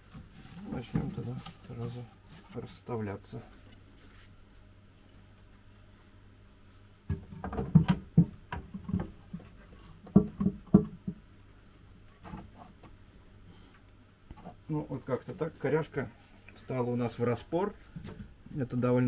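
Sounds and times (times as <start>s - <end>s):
wood knocking and scraping on glass: 10.0s - 11.2s
dull knocks: 10.1s - 11.2s.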